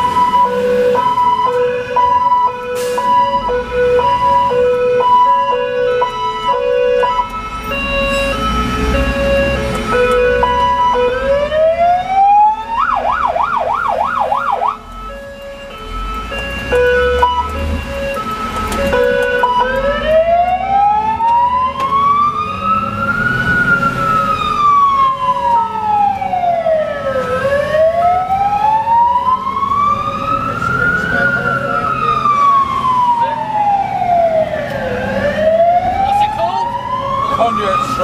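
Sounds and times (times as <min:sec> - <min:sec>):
fire engine siren wailing: 0:00.0 - 0:38.0.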